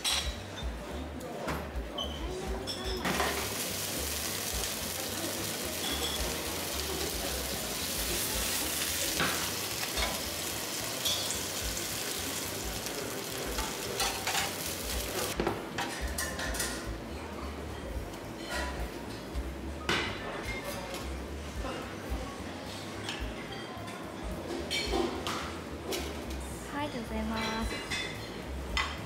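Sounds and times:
food sizzling in pan: 0:03.0 - 0:15.4.

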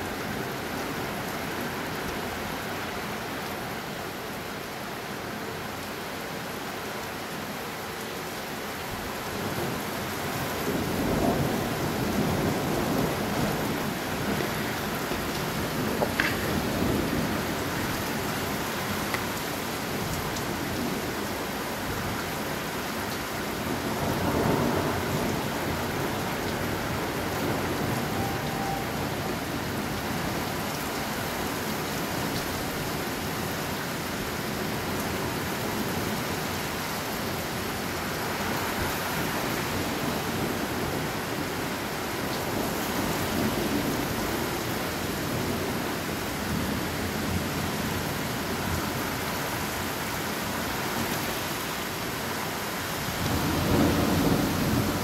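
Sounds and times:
steady rain falling: 0:00.0 - 0:55.0
raindrop ticks: 0:15.1 - 0:16.6, 0:19.0 - 0:19.4.

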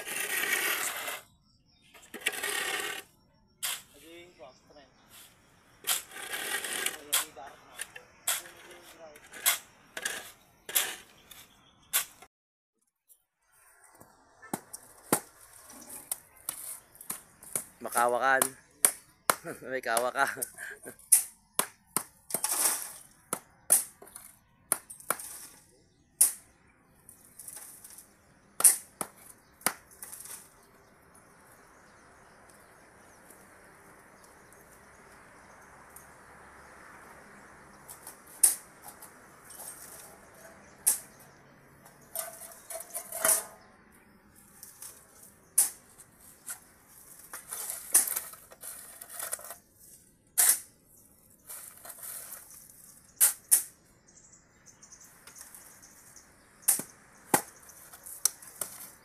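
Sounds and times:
shovel scraping concrete floor: 0:00.0 - 0:01.3, 0:01.9 - 0:04.1, 0:05.1 - 0:12.3, 0:22.3 - 0:26.4, 0:29.8 - 0:30.6, 0:37.9 - 0:41.3, 0:42.0 - 0:43.7, 0:44.4 - 0:50.8, 0:51.4 - 0:53.8, 0:56.7 - 0:59.0.

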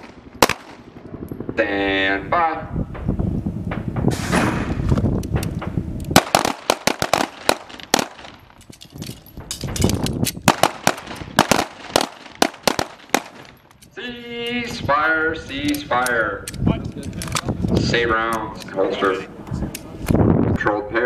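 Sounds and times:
pistols firing: 0:00.0 - 0:00.9, 0:06.1 - 0:08.6, 0:09.9 - 0:13.6.

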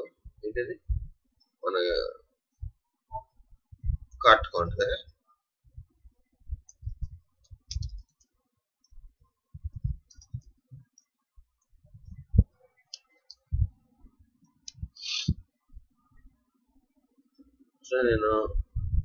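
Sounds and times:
keyboard typing: 0:06.6 - 0:08.3, 0:09.7 - 0:11.0.

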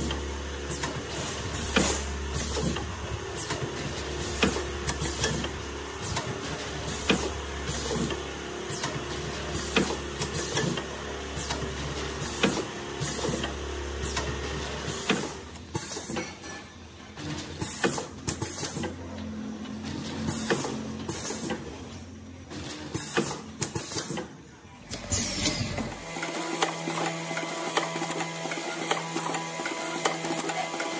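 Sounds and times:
packing machine clacking: 0:00.0 - 0:16.2, 0:24.9 - 0:30.9.

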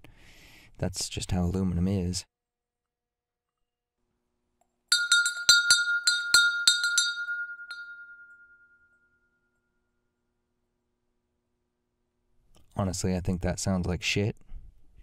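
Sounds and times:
metal bell struck: 0:04.9 - 0:09.3.

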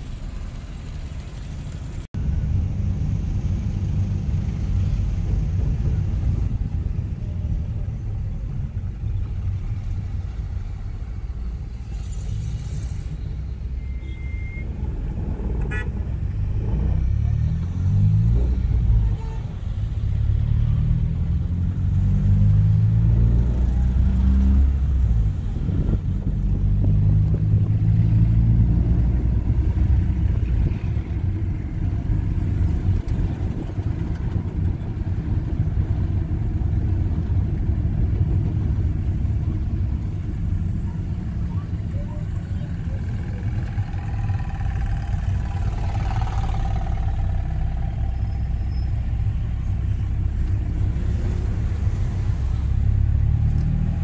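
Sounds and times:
car engine and road rumble: 0:00.0 - 0:54.0
short high beep: 0:13.7 - 0:14.7.

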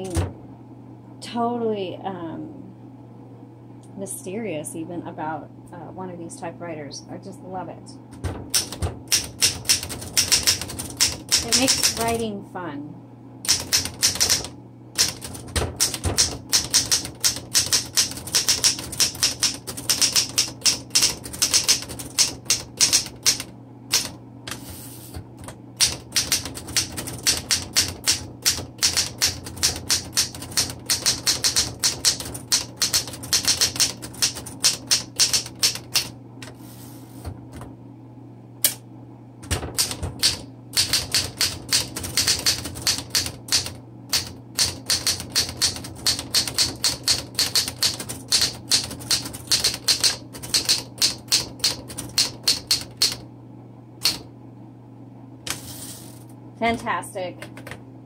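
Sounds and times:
manual typewriter typing: 0:08.2 - 0:12.2, 0:13.5 - 0:24.2, 0:25.8 - 0:36.1, 0:39.4 - 0:53.2, 0:54.0 - 0:54.2.

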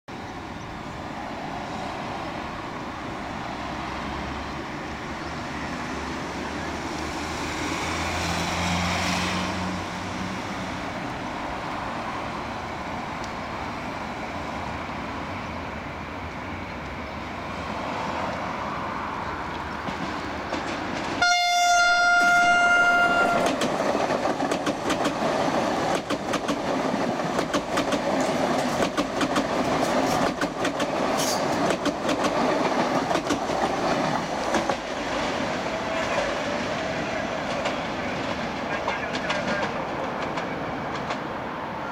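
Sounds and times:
train approaching rumble: 0:00.1 - 0:41.9
wheels clicking over rail joints: 0:19.5 - 0:36.3, 0:37.3 - 0:41.4
train horn blast: 0:21.2 - 0:23.6.

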